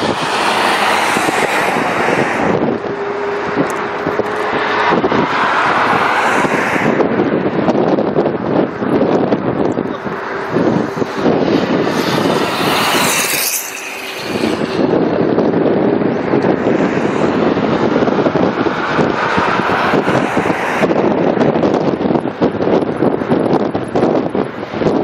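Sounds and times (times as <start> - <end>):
road and traffic noise: 0.0 - 25.0
wind buffeting microphone: 0.0 - 25.0.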